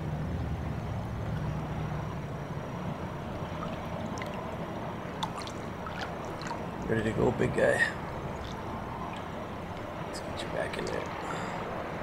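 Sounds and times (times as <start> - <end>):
shallow river water flowing: 0.5 - 12.0
faint water splashes: 2.9 - 11.8.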